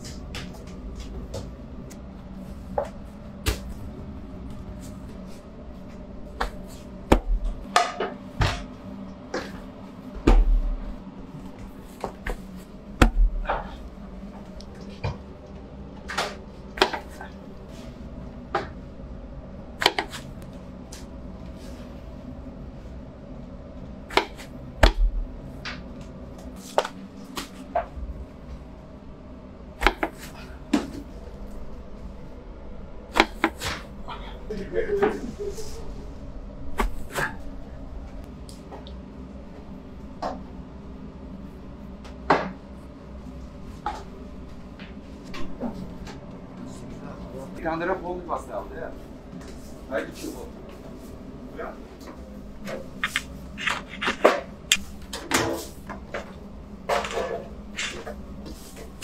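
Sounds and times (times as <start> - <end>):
steady low hum: 0.0 - 59.0
dough slapping on oven wall: 19.8 - 20.3, 24.1 - 25.2, 29.8 - 30.3, 33.2 - 33.9.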